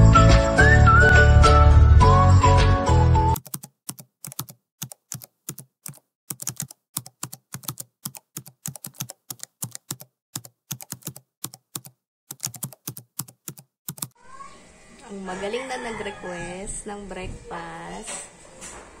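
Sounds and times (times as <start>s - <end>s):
keyboard typing: 3.4s - 14.2s.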